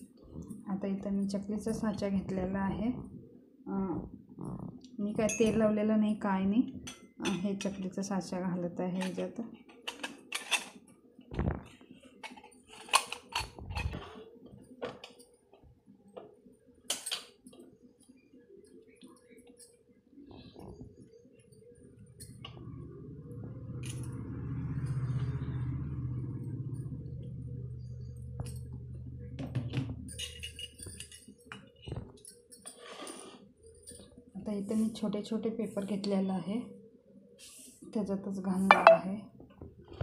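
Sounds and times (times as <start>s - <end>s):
low hum: 22.0s - 31.1s.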